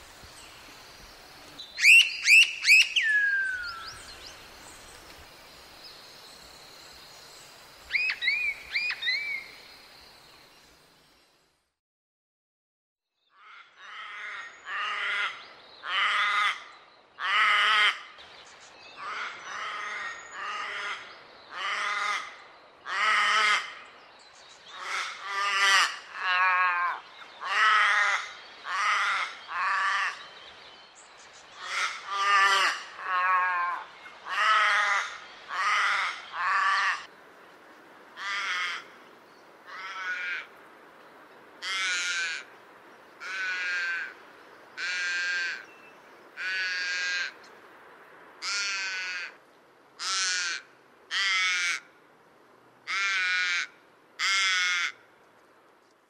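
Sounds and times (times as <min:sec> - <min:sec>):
raven harsh caws: 0:13.4 - 0:18.1, 0:19.0 - 0:23.8, 0:24.7 - 0:30.2, 0:31.6 - 0:37.1, 0:38.2 - 0:39.0, 0:39.7 - 0:40.5, 0:41.6 - 0:42.5, 0:43.2 - 0:44.2, 0:44.8 - 0:45.6, 0:46.4 - 0:47.4, 0:48.4 - 0:49.4, 0:50.0 - 0:51.9, 0:52.8 - 0:55.0.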